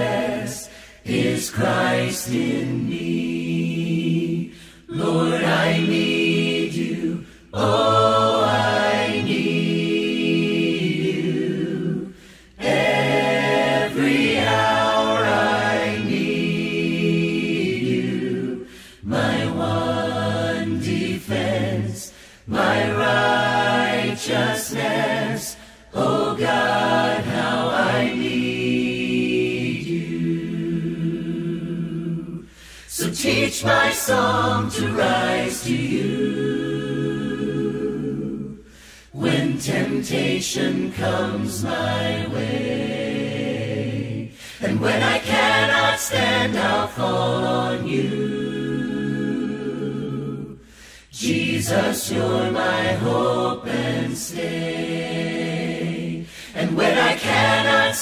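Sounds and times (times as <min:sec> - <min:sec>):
a cappella group singing: 0:00.0 - 0:58.0
singers breathing: 0:00.6 - 0:01.1, 0:04.5 - 0:04.9, 0:07.2 - 0:07.6, 0:12.1 - 0:12.6, 0:18.6 - 0:19.1, 0:22.1 - 0:22.5, 0:25.5 - 0:25.9, 0:32.4 - 0:33.0, 0:38.6 - 0:39.2, 0:44.3 - 0:44.7, 0:50.6 - 0:51.2, 0:56.2 - 0:56.6.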